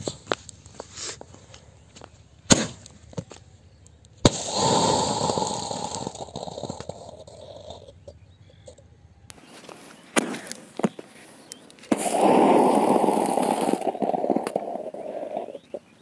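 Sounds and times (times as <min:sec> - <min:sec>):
sharp crack: 0:00.0 - 0:08.2, 0:09.3 - 0:16.0
firework bang: 0:02.5 - 0:02.9, 0:04.2 - 0:06.9, 0:11.9 - 0:15.0
firework fizzing hiss: 0:04.2 - 0:07.8, 0:11.9 - 0:15.8.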